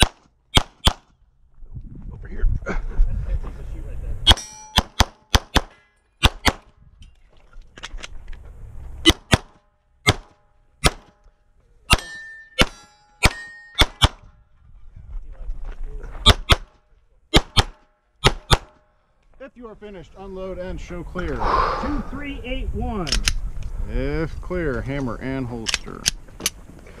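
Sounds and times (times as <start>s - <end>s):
pistol shots: 0.0s - 1.1s, 4.3s - 6.7s, 9.0s - 11.2s, 11.9s - 14.2s, 16.3s - 18.8s
metallic ring of steel target: 4.3s - 5.0s, 11.9s - 14.0s.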